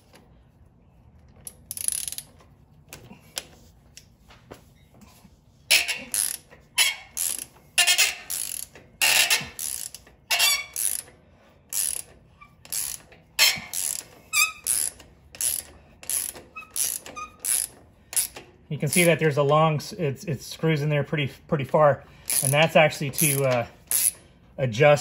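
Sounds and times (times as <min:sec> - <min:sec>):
ratchet wrench pawl clicking: 0:01.4 - 0:02.4, 0:05.7 - 0:19.2, 0:22.3 - 0:24.2.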